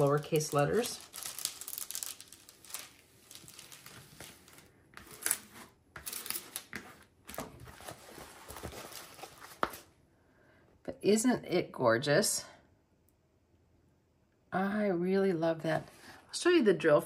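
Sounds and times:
plastic film crinkling: 0:00.0 - 0:05.4.

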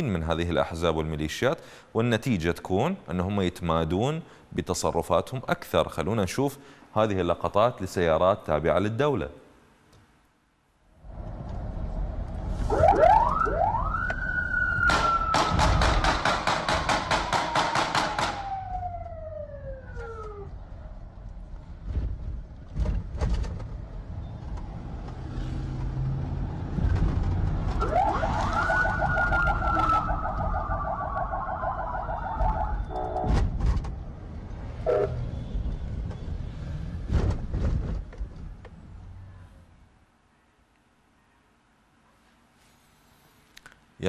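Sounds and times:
low traffic rumble: 0:09.5 - 0:42.0
electronic sirens wailing: 0:12.6 - 0:15.6, 0:18.1 - 0:20.6, 0:27.8 - 0:33.4
sharp cracks: 0:14.1 - 0:18.6.

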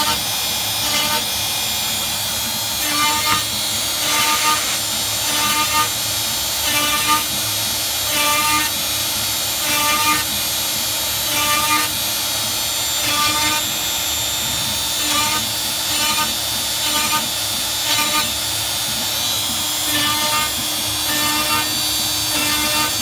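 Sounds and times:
router spindle whine: 0:00.0 - 0:23.0.

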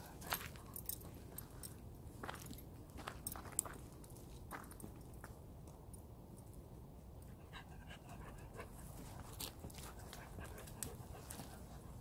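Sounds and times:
dog panting: 0:07.4 - 0:12.0.

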